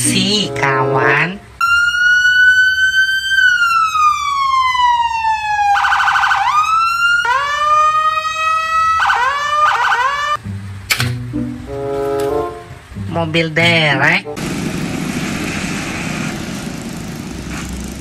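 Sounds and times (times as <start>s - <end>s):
police siren wailing: 0.0s - 10.4s
sharp click: 10.9s - 11.2s.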